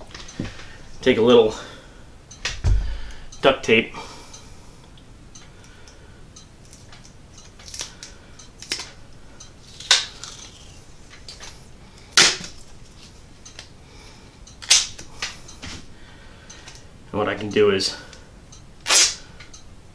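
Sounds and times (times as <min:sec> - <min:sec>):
duct tape ripping: 0:18.8 - 0:19.2.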